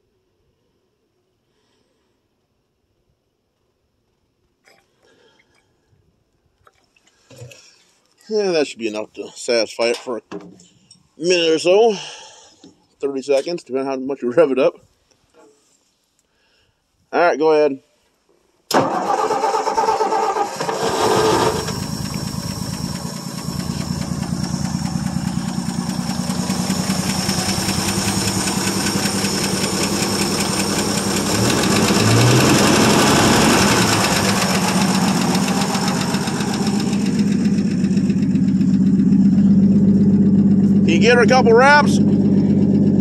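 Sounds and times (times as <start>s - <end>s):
truck engine cranking and running: 18.7s - 43.0s.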